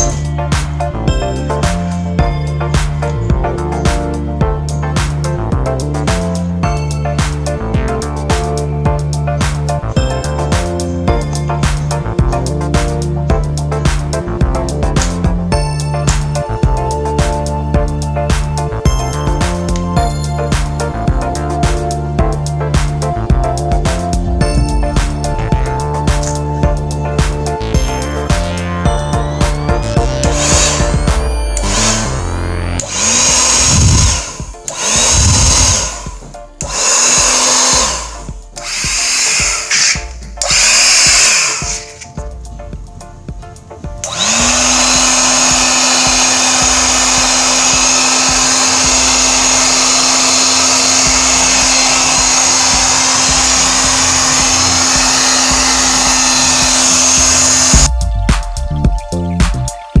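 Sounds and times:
air blower motor whine: 15.9s - 42.2s, 43.6s - 57.9s
rush of air: 32.8s - 40.0s.

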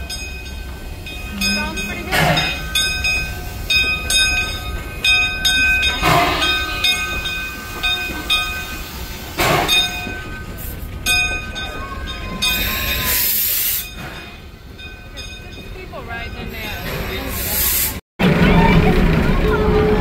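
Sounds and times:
locomotive bell ringing: 0.0s - 17.4s
steam hissing: 5.8s - 11.0s, 12.5s - 14.3s, 16.6s - 18.0s.

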